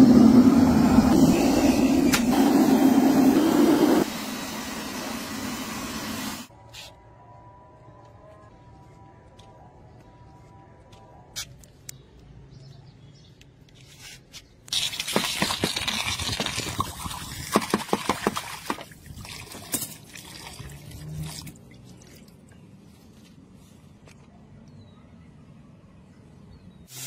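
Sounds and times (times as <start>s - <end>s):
hot metal steaming hiss and sizzle: 1.1s - 6.5s.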